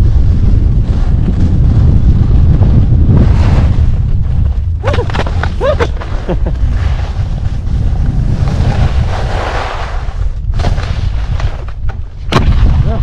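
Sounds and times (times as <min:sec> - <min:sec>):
wind buffeting microphone: 0:00.0 - 0:13.0
skis scraping on snow: 0:00.1 - 0:11.8.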